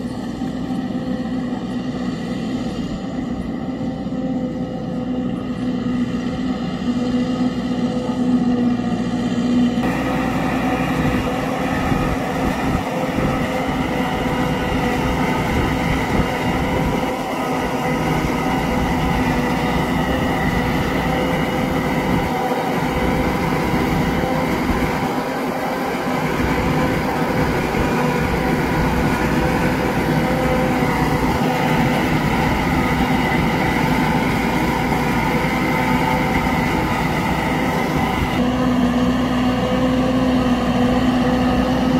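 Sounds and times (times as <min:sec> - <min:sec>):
forage harvester whine: 0:00.0 - 0:41.9
tractor engine drone: 0:00.0 - 0:41.9.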